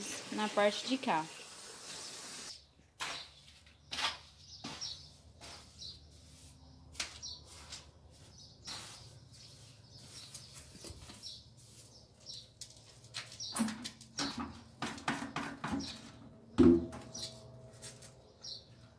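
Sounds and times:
trowel scraping mortar: 3.0s - 11.0s.

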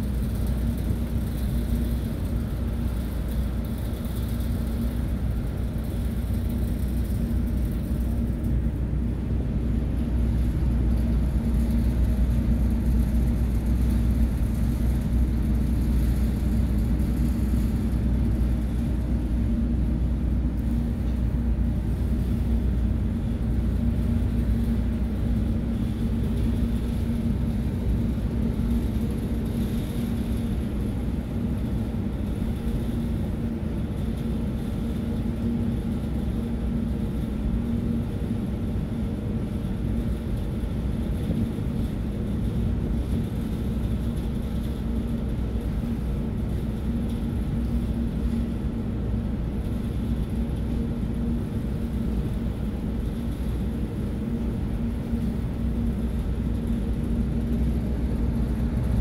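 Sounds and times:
ferry engines rumbling: 38.2s - 59.0s.

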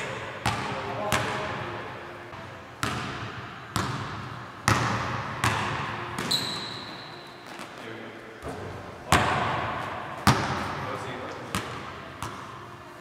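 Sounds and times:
basketball bouncing on gym floor: 0.4s - 1.6s, 2.8s - 7.7s, 8.4s - 10.8s, 11.5s - 12.6s
sneaker squeaking on floor: 5.4s - 7.8s.

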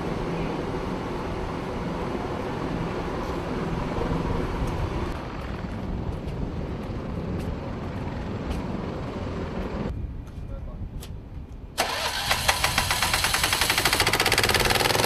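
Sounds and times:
aircraft engine rumble: 0.0s - 10.8s.

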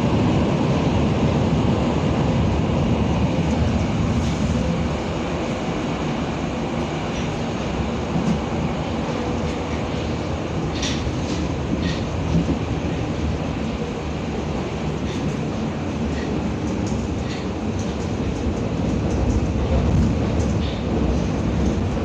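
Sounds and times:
train wheels rumbling: 0.0s - 22.0s
wheels clicking on rails: 7.0s - 22.0s.

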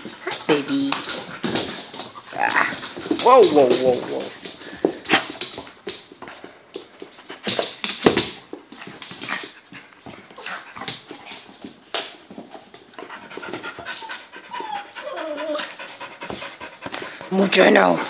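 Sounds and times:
dogs panting and huffing: 0.0s - 7.9s, 8.6s - 18.0s.

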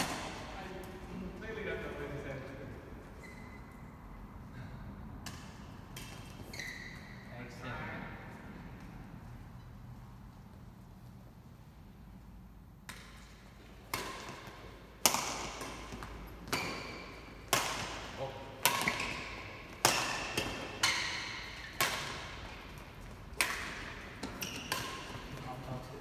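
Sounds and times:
racket smacking shuttlecock: 0.0s - 1.0s, 5.2s - 7.2s, 12.8s - 26.0s.

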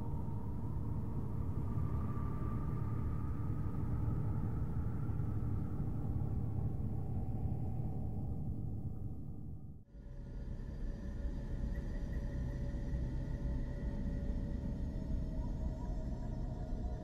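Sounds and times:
low rumbling drone: 0.0s - 9.8s.

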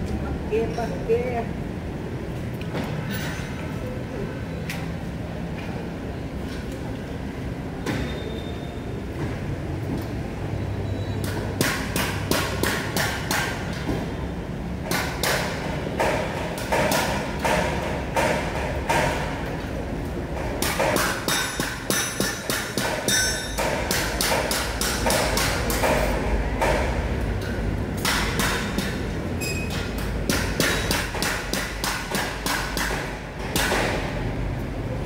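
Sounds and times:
hammering on metal: 11.6s - 13.7s, 14.8s - 19.4s, 20.4s - 27.0s, 28.0s - 29.1s, 29.8s - 34.1s
metallic ringing: 23.0s - 23.7s.

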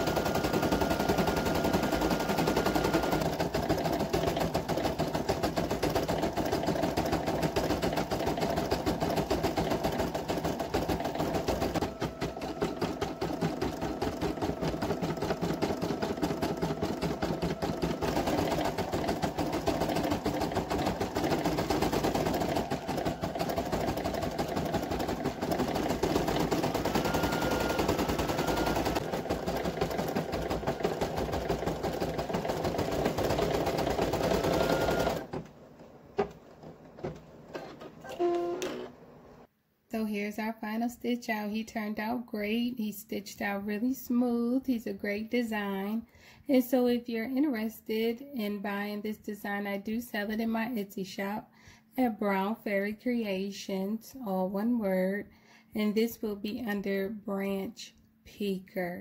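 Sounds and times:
embroidery machine stitching: 0.0s - 35.6s.

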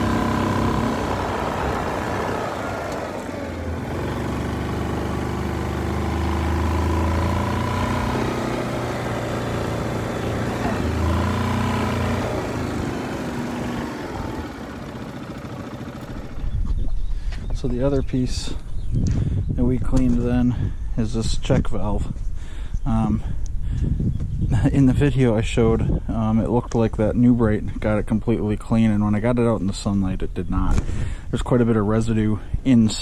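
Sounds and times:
atv engine idling: 0.0s - 16.8s.

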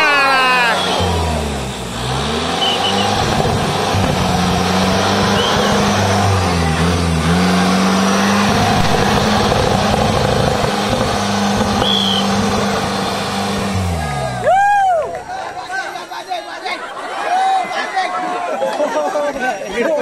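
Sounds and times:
off-road engine revving hard: 0.0s - 15.3s.

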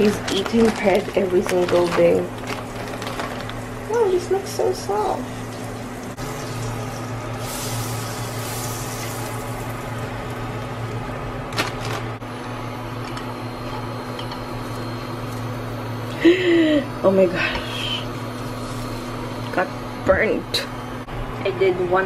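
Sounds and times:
steady low hum: 0.0s - 22.0s
butter sizzling in frying pan: 5.6s - 10.2s.

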